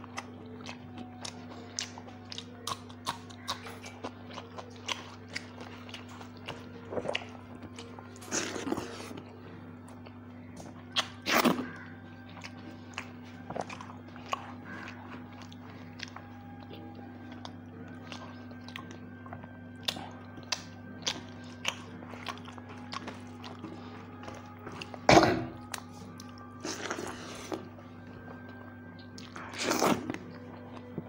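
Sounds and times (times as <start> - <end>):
chewing and crunching food: 0.0 - 31.0
steady low hum: 0.0 - 31.0.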